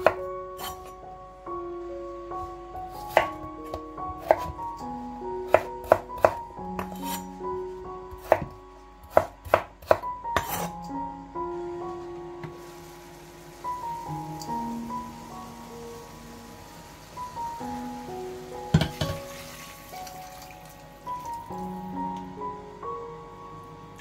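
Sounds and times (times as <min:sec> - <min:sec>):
soft background music: 0:00.0 - 0:24.0
knife chopping on wooden board: 0:04.2 - 0:04.6, 0:05.5 - 0:07.2, 0:08.2 - 0:10.7.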